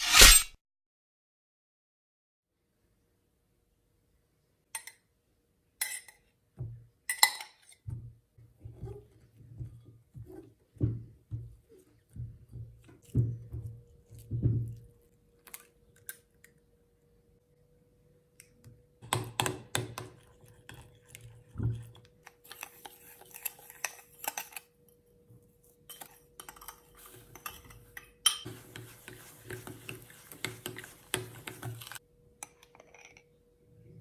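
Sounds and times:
gritty rasp of stirred sugar: 0:19.9 - 0:24.7, 0:25.9 - 0:32.0
metal spoon scraping glass bowl: 0:25.9 - 0:33.3.

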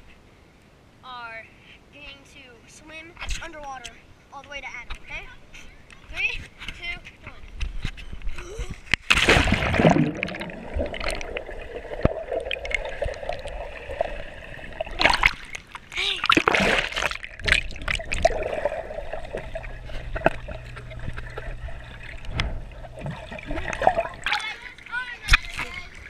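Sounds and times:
low steady hum: 0:00.0 - 0:26.0
muffled underwater sloshing and splashes: 0:09.0 - 0:26.0
gurgling bubbles: 0:09.2 - 0:25.9.

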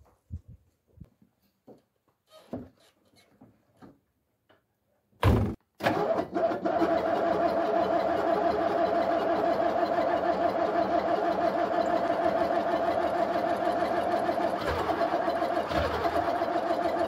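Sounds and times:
knocks and shuffling: 0:00.0 - 0:05.8
loud thud: 0:05.2 - 0:05.6
diesel engine starting and running: 0:05.8 - 0:17.0.

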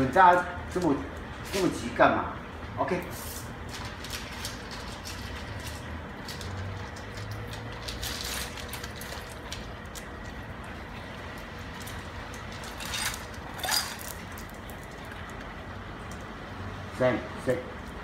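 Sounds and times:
dog crunching kibble: 0:03.7 - 0:10.7.

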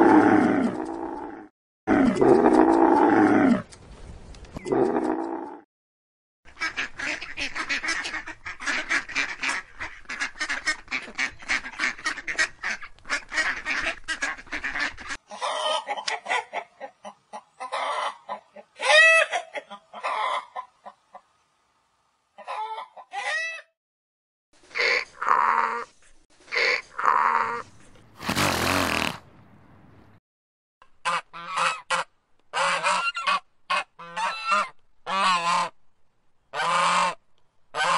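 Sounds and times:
hens clucking and squawking: 0:13.6 - 0:21.3, 0:22.4 - 0:23.6.

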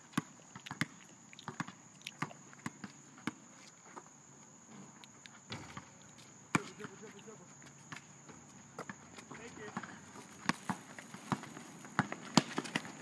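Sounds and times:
basketball bouncing: 0:00.1 - 0:03.4, 0:06.5 - 0:07.2, 0:07.9 - 0:13.0
players' footsteps: 0:05.5 - 0:13.0.

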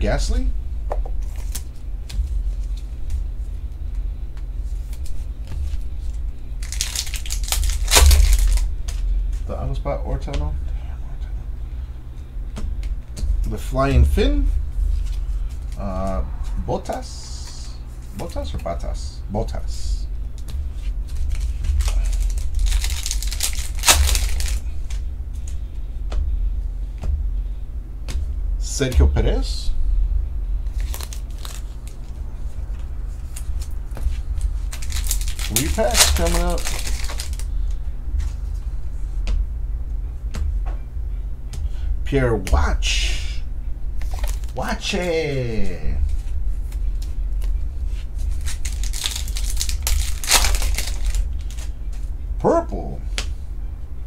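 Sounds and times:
low background hum: 0:00.0 - 0:54.0
plastic sleeves crinkling: 0:04.6 - 0:09.0, 0:20.4 - 0:25.6, 0:30.6 - 0:37.5, 0:44.0 - 0:44.6, 0:45.7 - 0:52.1
cards clicking: 0:06.6 - 0:09.0, 0:20.4 - 0:25.6, 0:33.3 - 0:37.5, 0:44.0 - 0:44.6, 0:48.4 - 0:51.7.

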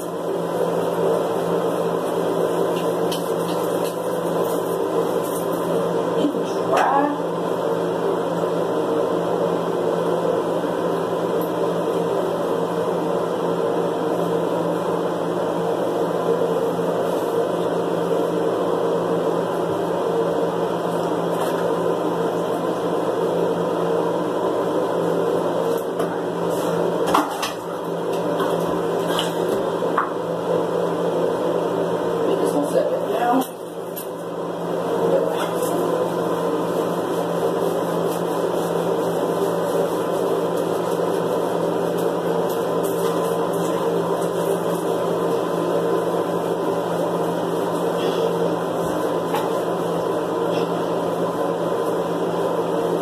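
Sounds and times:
steady mechanical hum: 0:00.0 - 0:53.0.

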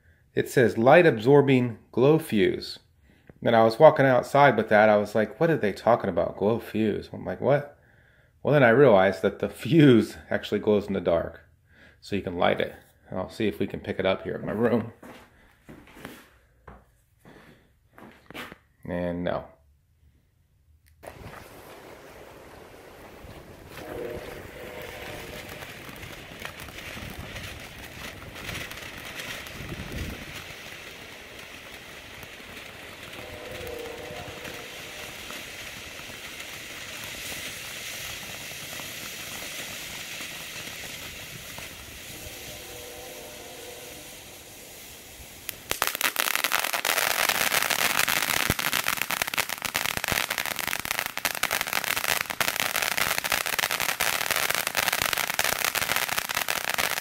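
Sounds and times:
firework crackling: 0:21.0 - 0:57.0
firework fountain hissing: 0:21.0 - 0:57.0.

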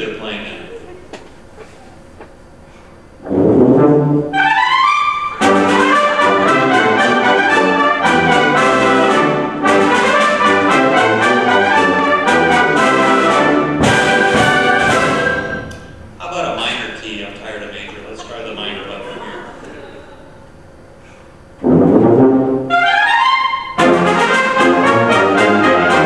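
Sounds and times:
wind band playing: 0:03.2 - 0:15.9, 0:21.6 - 0:26.0.

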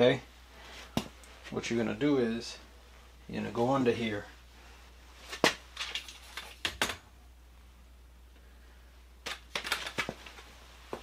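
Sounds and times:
steady low hum: 0:00.0 - 0:11.0
clicks and knocks of handling parts: 0:05.3 - 0:07.0, 0:09.2 - 0:10.4.

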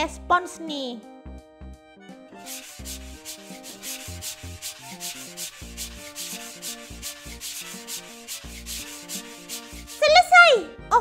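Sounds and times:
sponge scrubbing paper: 0:02.4 - 0:10.4.

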